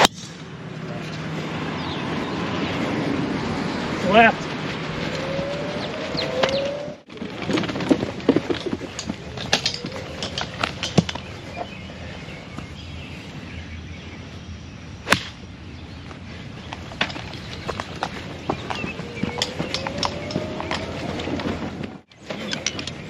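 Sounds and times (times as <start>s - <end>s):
sharp crack: 0.0s - 0.5s, 15.1s - 15.5s
golf clubs clicking and knocking: 8.3s - 11.3s, 16.7s - 23.0s.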